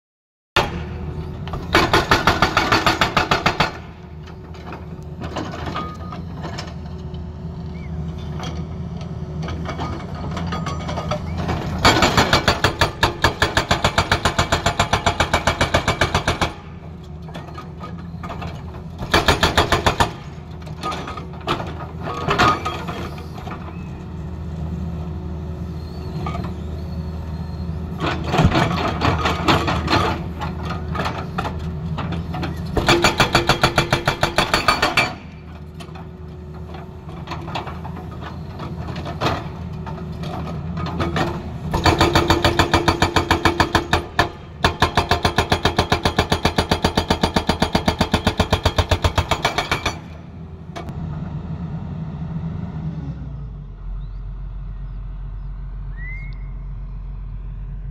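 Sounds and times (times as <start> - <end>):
hydraulic rock breaker hammering: 0.6 - 4.0, 11.8 - 16.7, 19.0 - 20.4, 32.8 - 35.4, 41.0 - 50.2
excavator engine running: 0.6 - 57.9.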